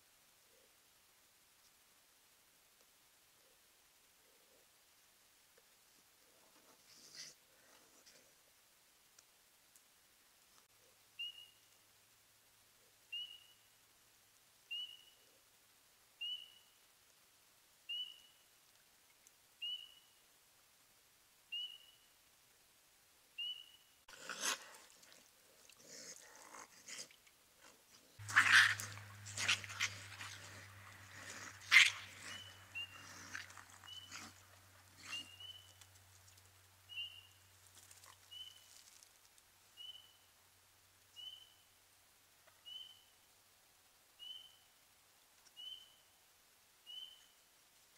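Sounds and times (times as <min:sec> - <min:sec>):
low steady hum: 0:24.8 - 0:38.3
raccoons fighting cries: 0:28.2 - 0:35.6.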